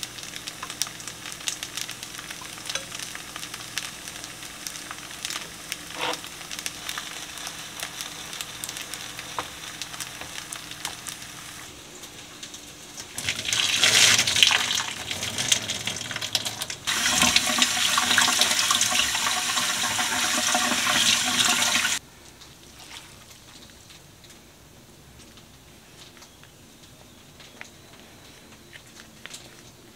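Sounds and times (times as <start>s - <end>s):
food sizzling in a pan: 0.0s - 22.0s
water rushing from kitchen tap: 13.1s - 22.0s.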